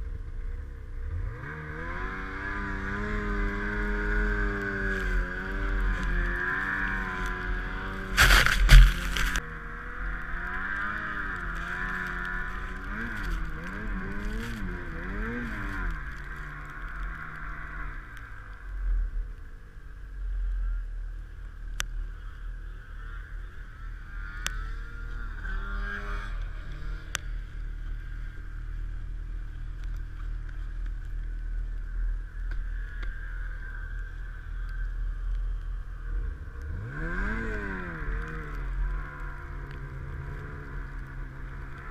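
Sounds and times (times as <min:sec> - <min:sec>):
snowmobile engine revving: 0:00.9 - 0:18.4, 0:22.1 - 0:30.8, 0:36.0 - 0:41.9.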